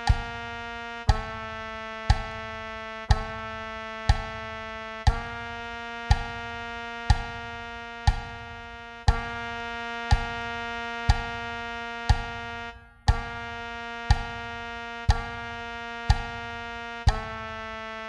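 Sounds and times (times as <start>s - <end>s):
metronome clicking: 0.0s - 0.3s, 2.1s - 2.4s, 4.1s - 4.4s, 6.1s - 6.4s, 7.1s - 7.4s, 8.1s - 8.4s, 10.1s - 10.4s, 11.1s - 11.4s, 12.1s - 12.4s, 16.1s - 16.4s, 17.1s - 17.4s.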